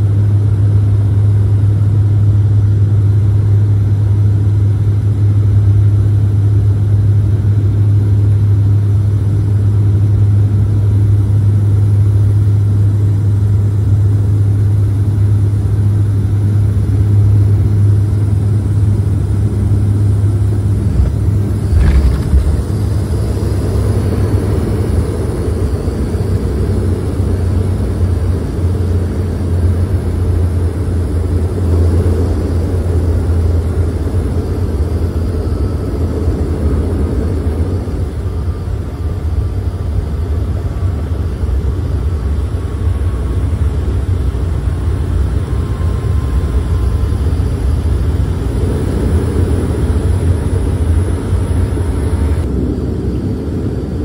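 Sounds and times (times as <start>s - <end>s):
propeller engines droning: 0.0s - 54.0s
rushing noise: 19.2s - 26.0s, 42.2s - 54.0s.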